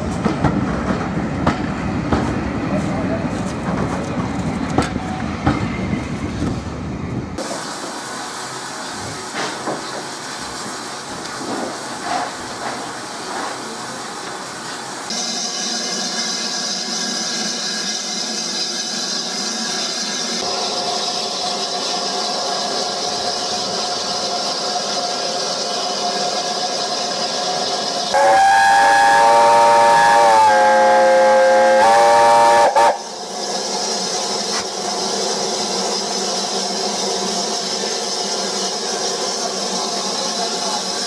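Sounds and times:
steam hissing from locomotive: 7.4 - 41.0
steam whistle: 28.1 - 33.1.

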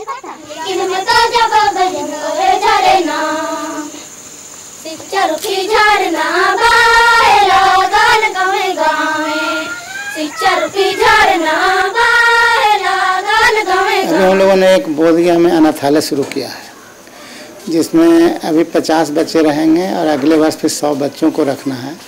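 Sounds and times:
girls singing together: 0.0 - 14.8.

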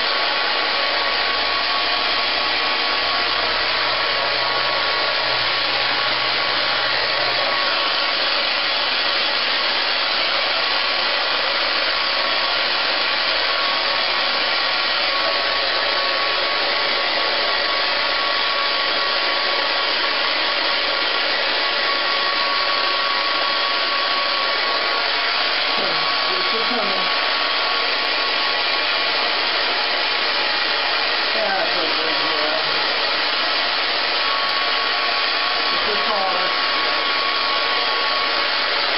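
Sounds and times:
hair dryer blowing: 0.0 - 38.9.

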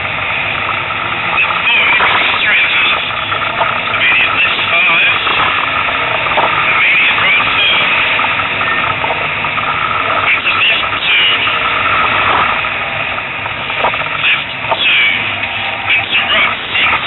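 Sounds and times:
car engine and road noise: 0.0 - 17.0.

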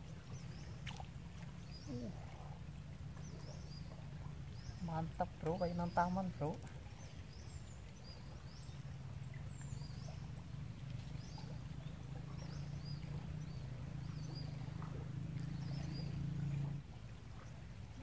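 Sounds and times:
steady low hum: 0.0 - 18.0
small birds chirping: 1.6 - 2.2, 3.2 - 10.3, 11.0 - 16.7.

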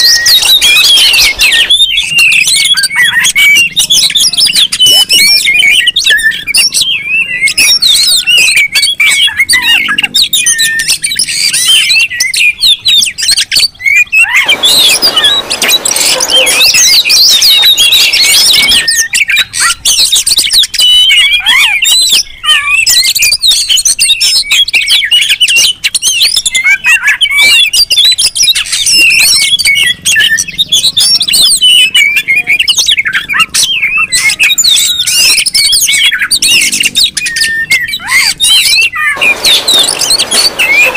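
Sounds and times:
birds singing and calling: 0.0 - 40.9
harsh rasping sound: 14.4 - 18.9, 39.2 - 40.9.

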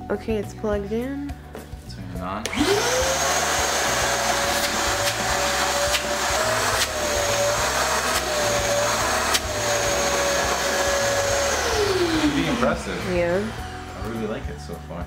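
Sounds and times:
shop vacuum motor whining: 2.4 - 14.6.

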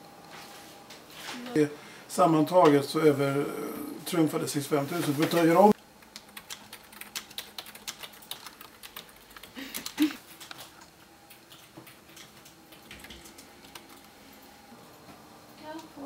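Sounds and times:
keyboard typing: 6.0 - 14.2.

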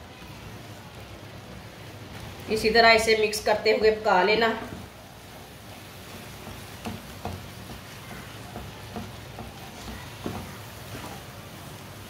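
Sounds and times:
spatula stirring thick paste: 4.6 - 12.0
spatula knocking against pan: 6.0 - 11.1.

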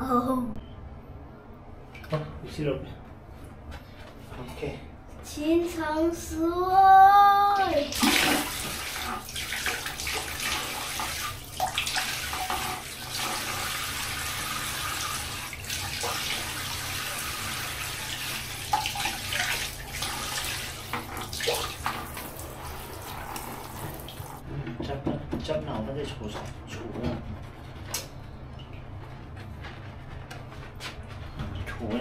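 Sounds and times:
tap water running into bathtub: 7.6 - 24.4
water splashes: 7.8 - 24.4.

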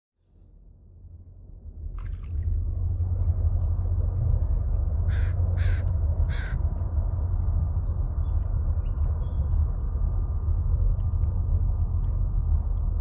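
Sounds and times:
steady low rumble: 0.2 - 13.0
crow cawing: 5.1 - 6.6.

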